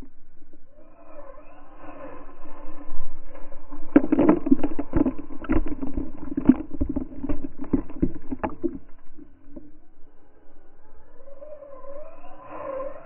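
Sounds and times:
water and mud splattering: 3.9s - 9.4s.

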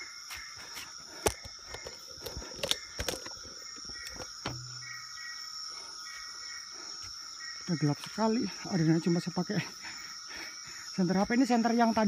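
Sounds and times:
chorus of forest insects: 0.0s - 12.0s
dull thump: 4.4s - 5.0s.

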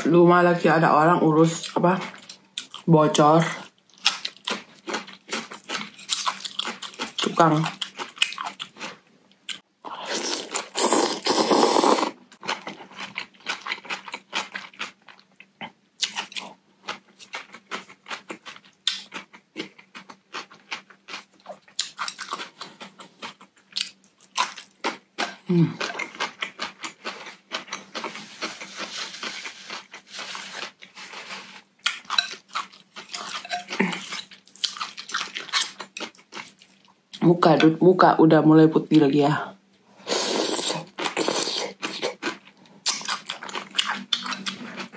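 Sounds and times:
chewing and crunching: 1.4s - 9.7s, 10.3s - 37.2s, 40.6s - 44.9s
slurping noodles: 10.0s - 12.2s, 40.0s - 42.1s.

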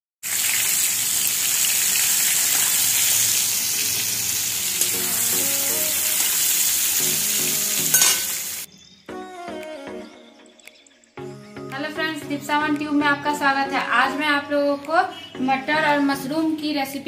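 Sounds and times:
mushrooms sizzling in oil: 0.2s - 8.7s.

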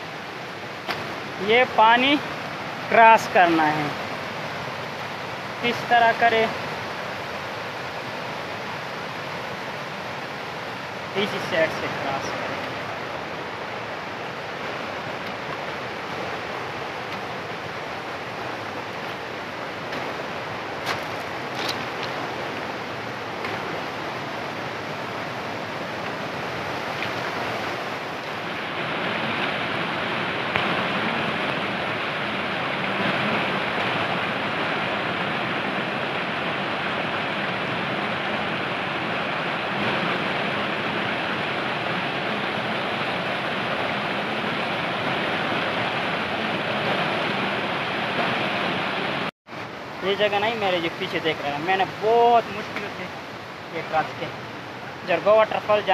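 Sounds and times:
stream rushing over rocks: 0.0s - 55.9s.

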